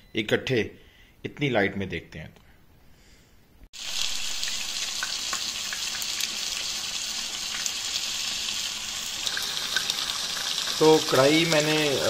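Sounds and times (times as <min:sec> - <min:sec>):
chicken sizzling in hot oil: 0:03.8 - 0:12.0.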